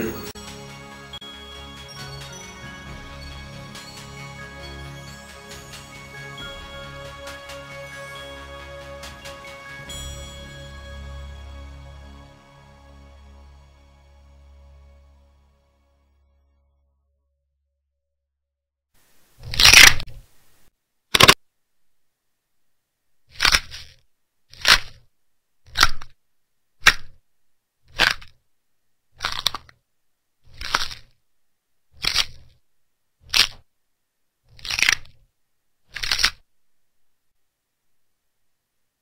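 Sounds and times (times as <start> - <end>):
short crackling noise bursts: 19.0 - 21.4.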